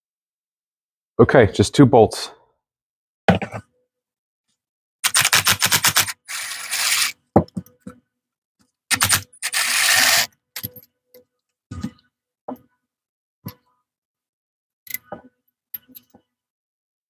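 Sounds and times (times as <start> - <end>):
ratchet wrench clicking: 8.9 - 10.3
metal parts clicking and tapping: 8.9 - 10.9.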